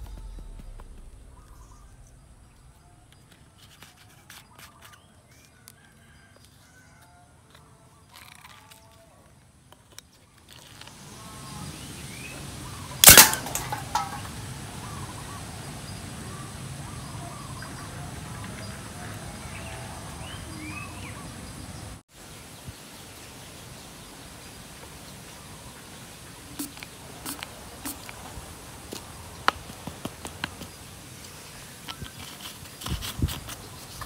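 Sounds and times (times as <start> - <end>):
birds chirping: 0.0 - 5.2, 10.9 - 22.0
can gun bang: 13.0 - 14.5.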